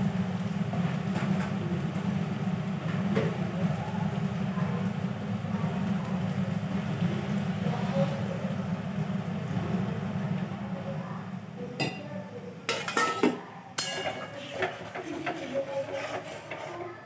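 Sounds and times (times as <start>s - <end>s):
metal spatula scraping pan: 12.7s - 17.0s.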